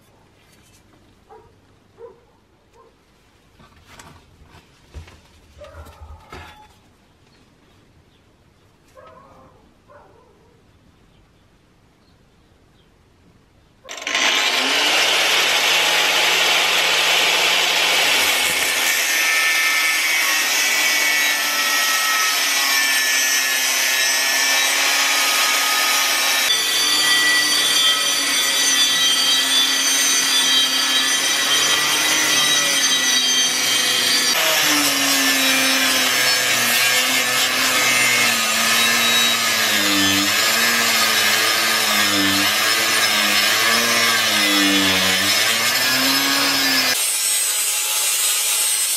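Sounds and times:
angle grinder grinding metal: 13.9 - 48.9.

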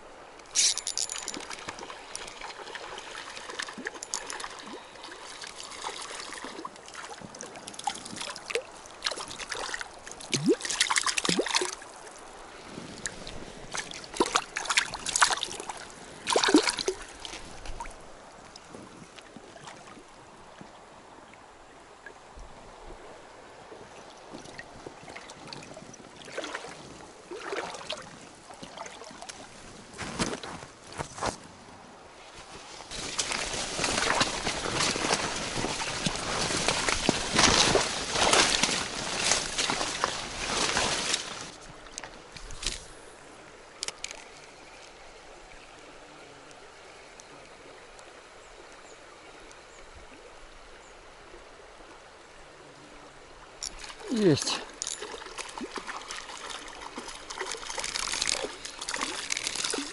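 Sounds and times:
river trickling: 0.0 - 59.9
fish splashing in water: 55.0 - 59.9.

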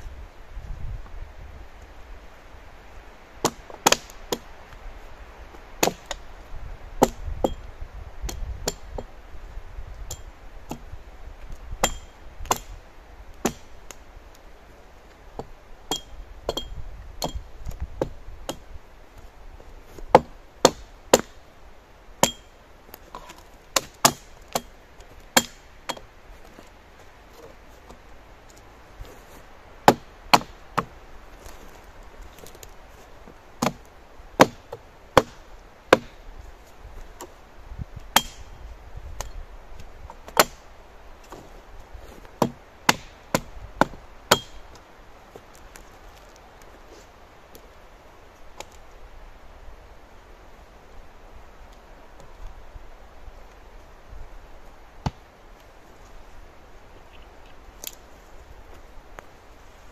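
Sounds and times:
hand tool chopping wood: 3.4 - 4.5, 13.4 - 13.7, 20.1 - 21.4, 23.2 - 24.7, 25.4 - 26.0, 29.9 - 30.9, 33.6 - 33.8, 34.4 - 36.2, 38.1 - 38.5, 40.3 - 40.6, 42.4 - 44.6.

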